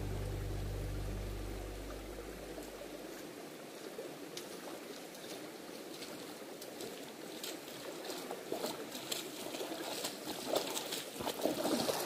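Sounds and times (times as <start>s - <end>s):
stream running over stones: 1.8s - 12.0s
booted footsteps splashing in water: 4.9s - 12.0s.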